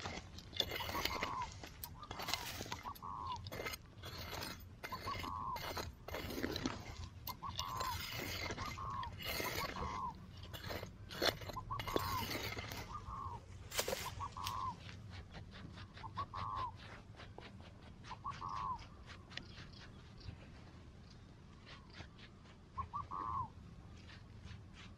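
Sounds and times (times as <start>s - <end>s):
metal tool scraping sandy soil: 0.0s - 14.9s
bird calling: 0.6s - 15.0s, 15.8s - 17.0s, 18.0s - 24.1s.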